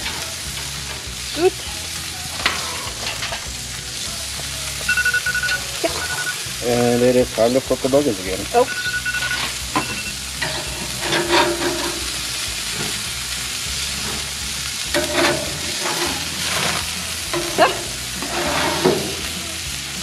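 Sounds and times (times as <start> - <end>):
spatula scraping grill grate: 0.0 - 4.8, 5.8 - 20.0
burgers sizzling on grill: 0.0 - 20.0.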